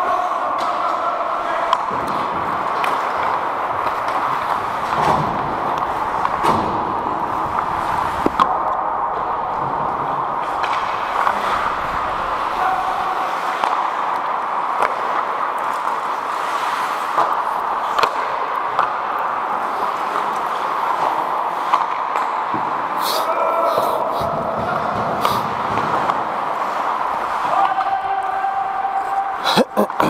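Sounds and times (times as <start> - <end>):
hockey sticks and puck clacking: 0.0 - 30.0
skates hissing on ice: 22.9 - 27.5.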